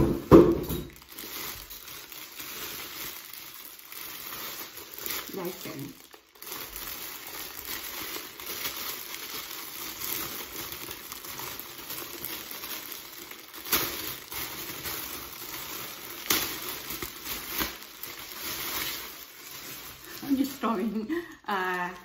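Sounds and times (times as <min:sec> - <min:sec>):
plastic bag crinkling: 0:00.0 - 0:22.0.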